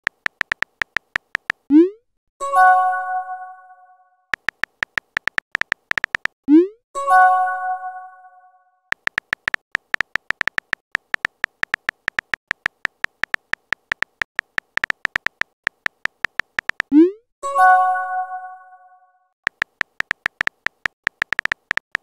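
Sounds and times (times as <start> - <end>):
keyboard tap clicks: 0.0 - 1.7, 4.4 - 6.4, 8.9 - 16.9, 19.5 - 22.0.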